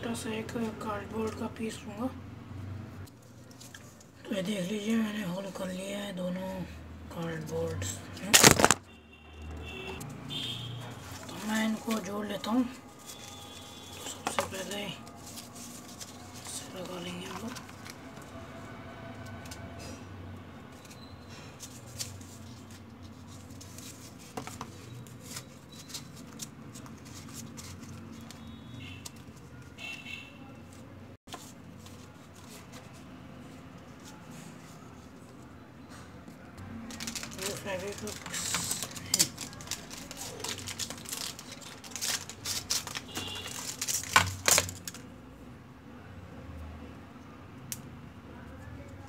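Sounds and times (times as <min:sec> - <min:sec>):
cardboard clicks and rustles: 0:08.2 - 0:08.8, 0:21.6 - 0:28.4, 0:36.8 - 0:45.1
plastic packaging crinkling: 0:08.2 - 0:08.8, 0:36.7 - 0:45.1.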